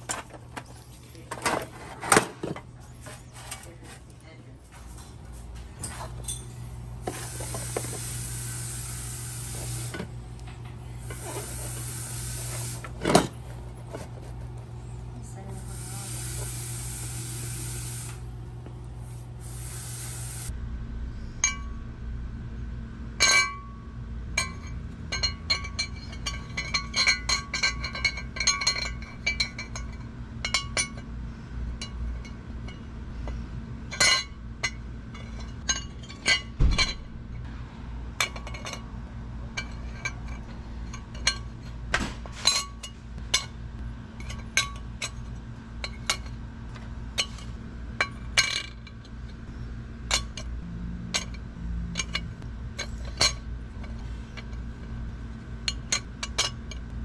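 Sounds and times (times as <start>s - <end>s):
steady low hum: 0.0s - 57.0s
metal hardware clinking: 5.8s - 6.6s, 24.4s - 31.1s, 51.1s - 54.9s, 55.6s - 56.9s.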